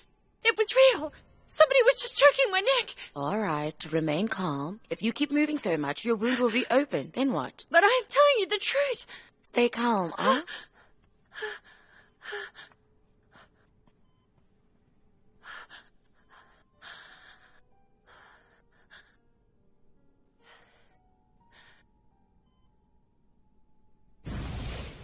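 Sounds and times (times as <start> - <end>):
soft background music: 0.0 - 25.0.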